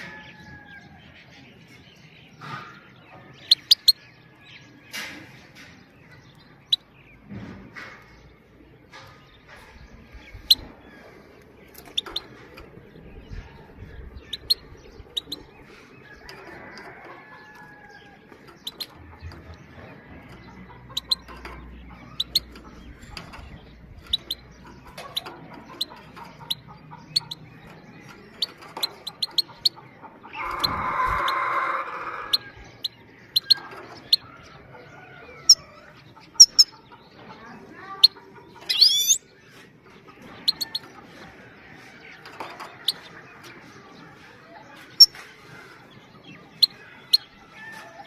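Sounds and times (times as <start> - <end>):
goldfinch calling: 38.7 - 39.2.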